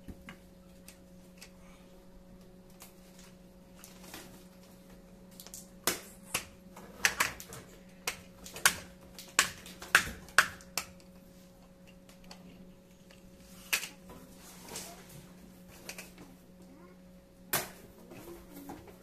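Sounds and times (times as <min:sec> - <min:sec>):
deck tiles clicking and snapping: 0:05.3 - 0:11.2.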